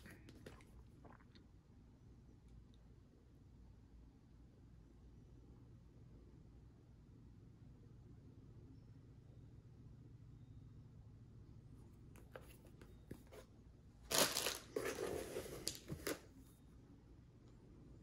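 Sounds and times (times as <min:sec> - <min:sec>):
plastic packing crinkling: 0:14.1 - 0:16.2.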